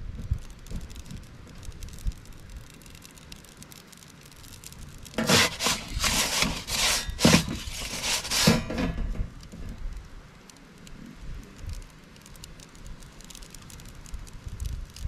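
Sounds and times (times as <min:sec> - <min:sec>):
metal peel scraping baking stone: 0:05.2 - 0:09.1.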